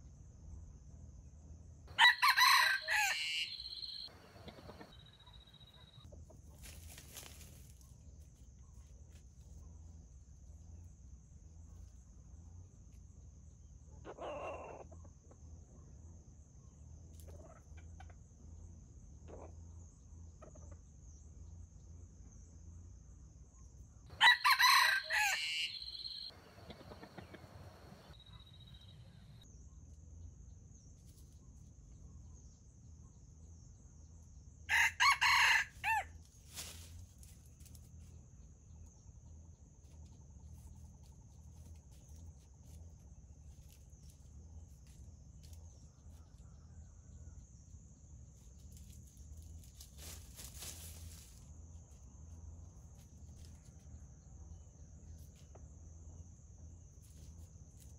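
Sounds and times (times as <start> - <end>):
rooster crowing: 1.9 - 5.0, 24.1 - 28.1, 34.7 - 36.1.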